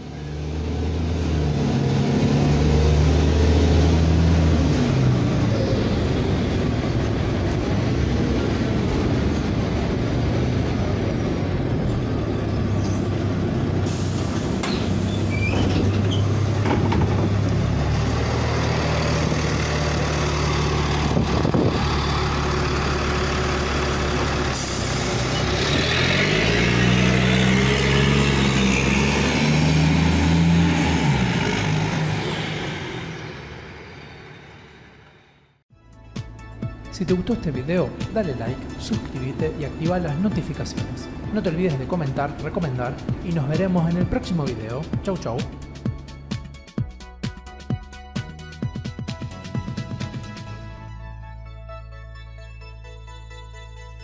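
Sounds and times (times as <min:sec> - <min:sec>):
bus diesel engine idling: 0:05.1 - 0:25.7
air hissing from brakes and doors: 0:13.8 - 0:16.2, 0:24.5 - 0:25.4.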